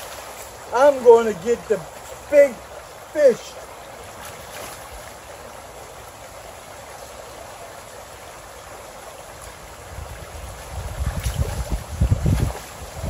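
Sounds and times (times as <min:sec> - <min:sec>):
creek babbling over rocks: 0:00.0 - 0:13.0
wind rumbling on microphone: 0:09.7 - 0:13.0.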